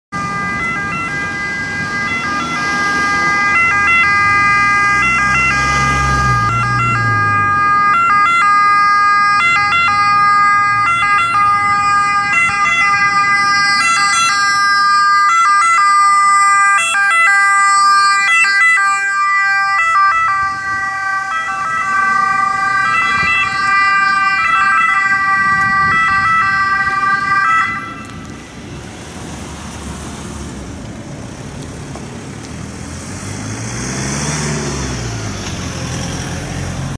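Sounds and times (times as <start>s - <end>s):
ambulance siren steady tones: 0.1s - 28.9s
traffic noise: 0.1s - 36.9s
vehicle rumble passing: 0.2s - 36.9s.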